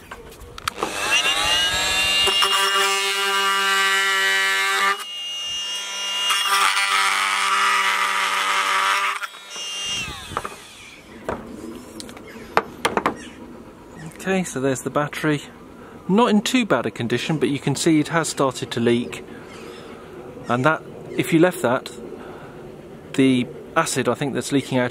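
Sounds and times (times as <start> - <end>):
blade cutting plastic: 0.6 - 11.1
oscillating tool whine: 0.7 - 12.6.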